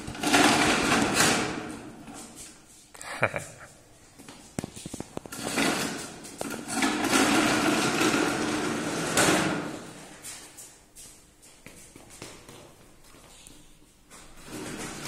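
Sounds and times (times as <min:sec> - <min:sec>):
plastic toy wheels rolling on tiles: 0:00.0 - 0:01.8, 0:04.6 - 0:10.0.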